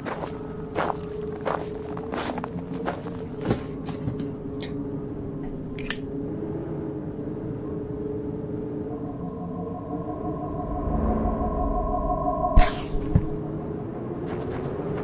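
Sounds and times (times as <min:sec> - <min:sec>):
footsteps crunching over rubbish: 0:00.0 - 0:04.3
low drone: 0:04.4 - 0:14.2
high steady tone: 0:07.2 - 0:13.6.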